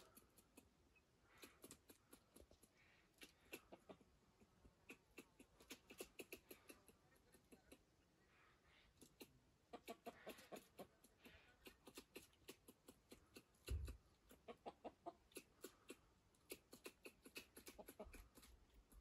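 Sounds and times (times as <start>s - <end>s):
animal clucking calls: 3.2s - 7.9s, 9.2s - 18.5s.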